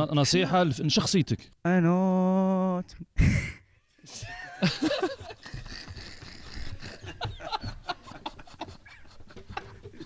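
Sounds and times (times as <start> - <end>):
breathy laughter: 3.2 - 10.0.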